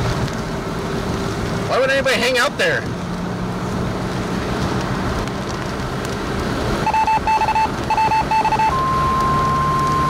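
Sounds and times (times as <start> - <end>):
short electronic beeps: 6.8 - 10.0.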